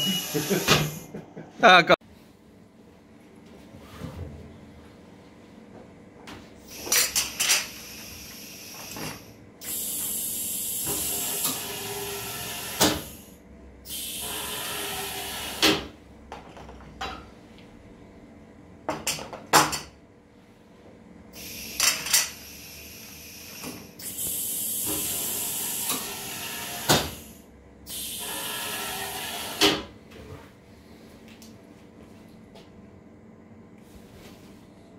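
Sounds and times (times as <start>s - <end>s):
pneumatic cylinders clacking: 0.0s - 1.1s, 6.7s - 13.2s, 21.4s - 22.6s, 23.4s - 27.3s
air hissing burst: 7.6s - 11.7s, 21.4s - 29.6s.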